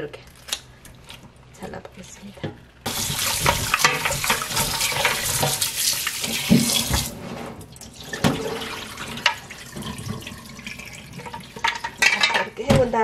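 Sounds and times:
tap water running into pot: 2.9s - 7.2s, 7.8s - 12.1s.

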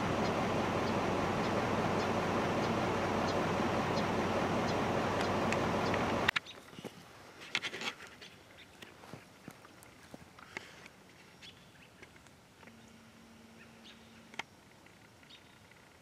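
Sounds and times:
steady rushing noise: 0.0s - 6.3s.

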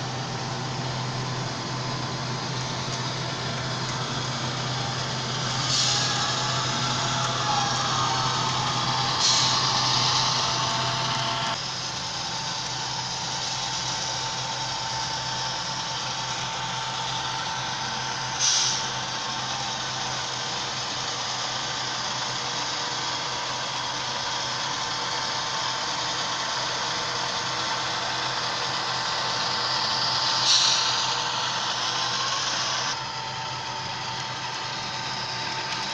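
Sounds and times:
loud hiss: 0.0s - 11.6s, 17.9s - 19.4s, 27.4s - 32.9s
diesel locomotive engine running: 0.0s - 35.9s.

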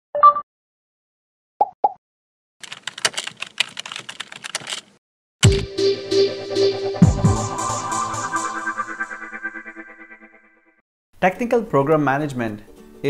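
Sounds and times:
keyboard key clicks: 2.6s - 4.9s
synth music with low bass: 5.4s - 10.3s.

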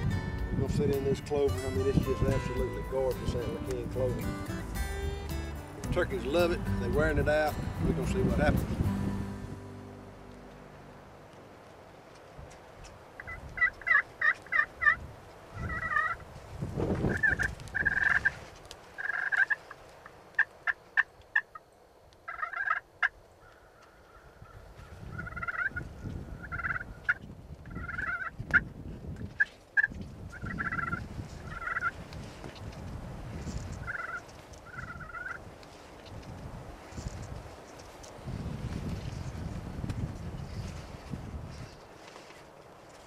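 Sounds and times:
turkeys calling: 13.2s - 15.0s, 15.6s - 16.2s, 17.1s - 18.4s, 19.0s - 19.8s, 22.3s - 28.6s, 29.4s - 32.0s, 33.7s - 36.1s.

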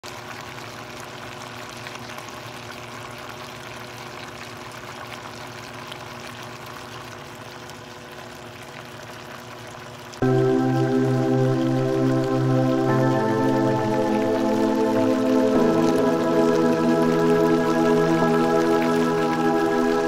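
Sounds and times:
stew bubbling in a pot: 0.0s - 20.0s
loud music: 10.2s - 20.0s.

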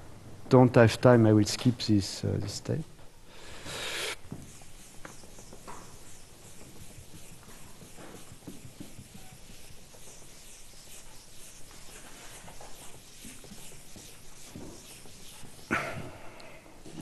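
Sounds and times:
chalk scratching on board: 3.9s - 16.0s.

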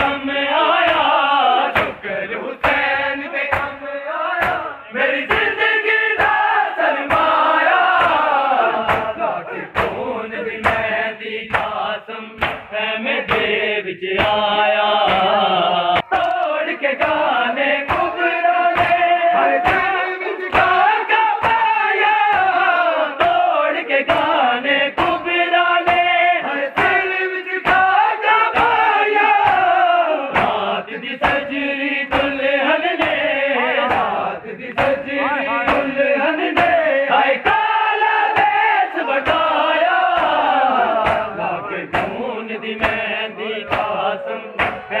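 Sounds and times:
men chanting a lament: 0.0s - 45.0s
hands striking bare chests: 4.4s - 4.7s, 7.1s - 10.0s, 18.7s - 23.5s, 29.4s - 31.4s, 40.1s - 42.2s, 43.7s - 44.0s, 44.6s - 45.0s.

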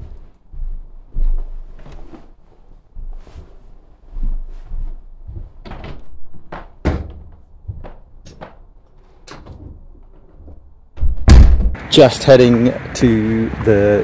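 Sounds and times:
irregular knocks and clunks: 5.2s - 11.8s.

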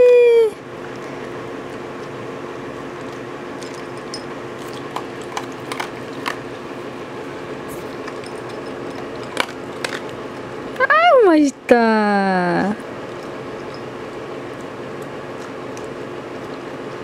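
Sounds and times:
low background hum: 0.0s - 17.0s
dog crunching dry kibble: 0.8s - 6.9s, 7.7s - 10.5s, 12.8s - 17.0s.

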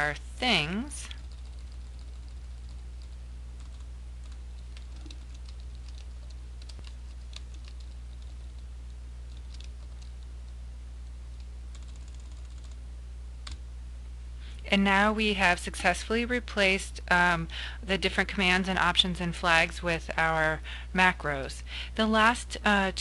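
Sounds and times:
steady low hum: 0.0s - 23.0s
typing on computer keyboard: 1.2s - 8.7s, 9.3s - 10.2s, 11.4s - 12.8s.

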